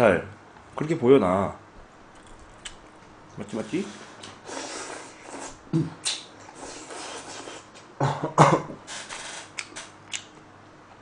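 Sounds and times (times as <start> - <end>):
man slurping noodles: 3.9 - 5.6, 6.5 - 7.8.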